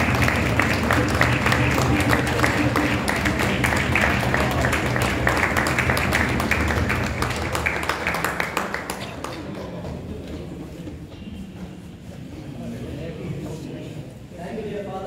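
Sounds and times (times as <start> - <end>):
people clapping: 0.0 - 10.6.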